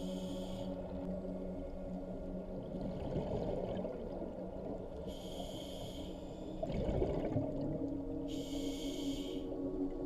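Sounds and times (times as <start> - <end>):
regulator hissing inhale: 0.0 - 0.8, 5.1 - 6.6, 8.3 - 9.6
slow ambient music: 0.0 - 10.0
exhaled bubbles rumbling: 2.6 - 4.9, 6.6 - 8.1.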